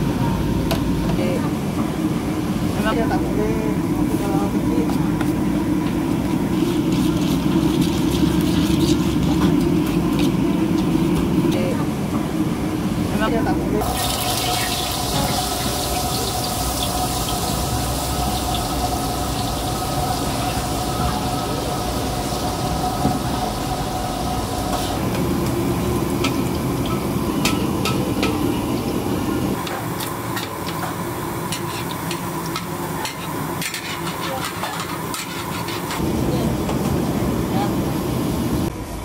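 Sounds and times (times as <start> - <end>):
batter sizzling in hot oil: 6.0 - 11.4, 13.8 - 36.0
steady hum: 16.4 - 32.9.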